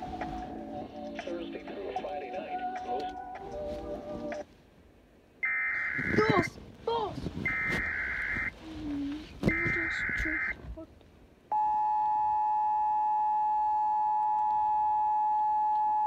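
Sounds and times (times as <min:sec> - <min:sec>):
data bursts: 0:05.4 - 0:06.5, 0:07.5 - 0:08.5, 0:09.5 - 0:10.6
two-tone attention signal: 0:07.5 - 0:08.5.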